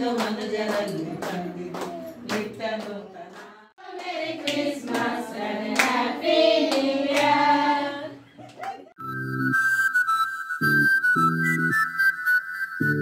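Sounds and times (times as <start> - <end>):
children and women singing a carol: 0.0 - 8.2
hands clapping: 0.2 - 6.0, 6.6 - 7.4, 8.4 - 9.0
flute music: 9.0 - 13.0.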